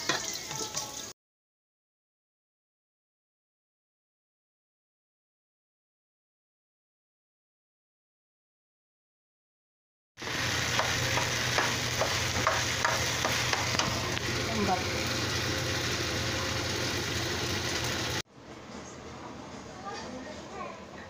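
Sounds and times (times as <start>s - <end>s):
spatula scraping and tapping pan: 0.0s - 1.0s, 10.7s - 14.0s
food sizzling in a frying pan: 0.0s - 1.2s, 10.2s - 18.2s.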